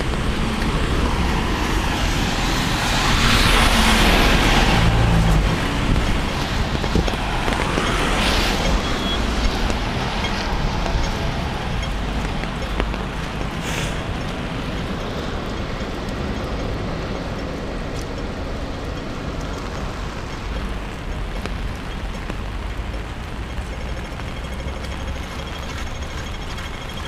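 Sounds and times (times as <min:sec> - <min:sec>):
wind buffeting microphone: 0:00.0 - 0:27.0
heavy rain hiss: 0:13.4 - 0:14.3.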